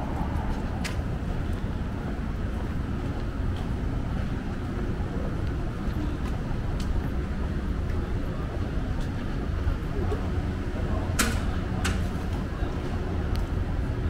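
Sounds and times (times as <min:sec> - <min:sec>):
wind on microphone: 0:00.0 - 0:03.0
traffic rumble: 0:00.0 - 0:14.0.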